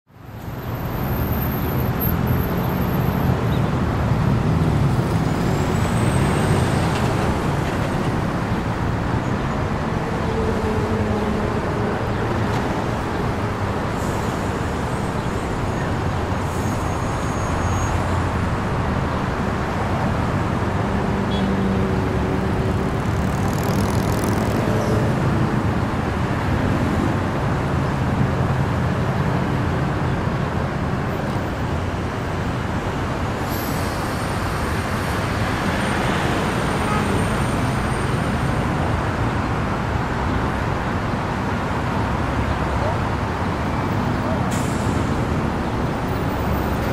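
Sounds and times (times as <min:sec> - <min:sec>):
road traffic hum: 0:00.0 - 0:46.9.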